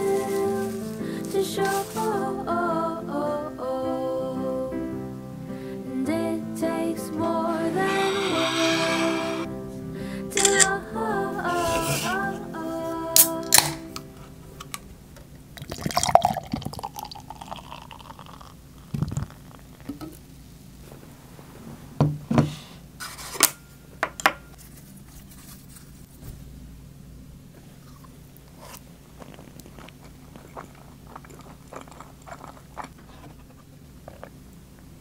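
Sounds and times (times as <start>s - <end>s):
can snapping open: 13.2s - 13.8s
beer fizzing pour: 15.6s - 18.9s.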